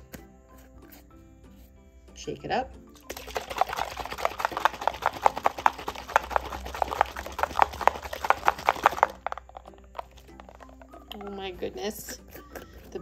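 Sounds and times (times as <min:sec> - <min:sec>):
water sloshing in shaken bottle: 0:03.0 - 0:12.0.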